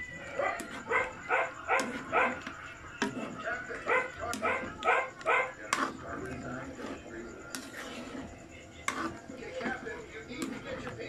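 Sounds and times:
dog barking: 0.4s - 2.4s, 3.8s - 5.6s.

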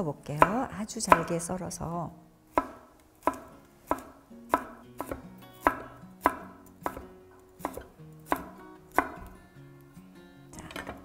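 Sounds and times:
knife chopping on wooden board: 0.4s - 1.3s, 2.5s - 9.3s.

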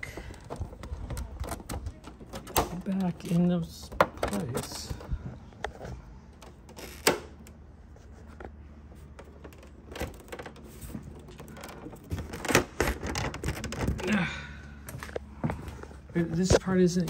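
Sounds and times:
plastic panels clicking and knocking: 0.1s - 7.5s.

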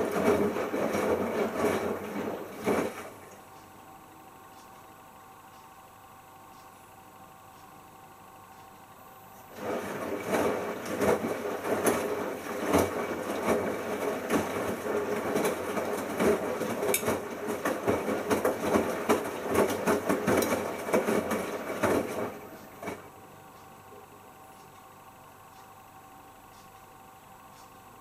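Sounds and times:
washing machine drum tumbling: 0.0s - 3.3s, 9.5s - 23.1s.

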